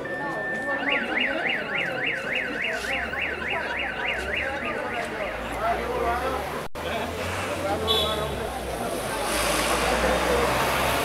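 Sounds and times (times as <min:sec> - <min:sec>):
car alarm siren: 0:00.0 - 0:05.5
crowd chatter: 0:00.0 - 0:11.0.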